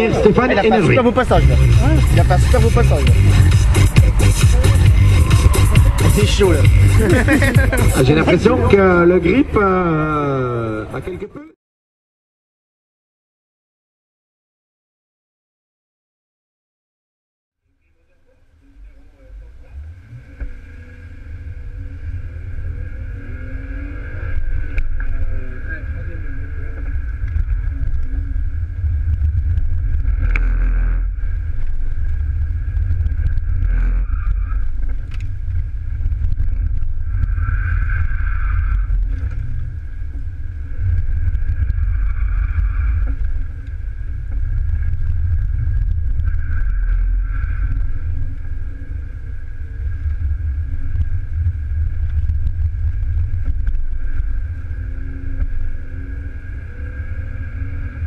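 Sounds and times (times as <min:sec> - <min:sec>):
tyre and road rumble: 0:00.0 - 0:11.5, 0:17.8 - 0:58.0
car engine revving hard: 0:00.8 - 0:09.1, 0:19.6 - 0:35.2.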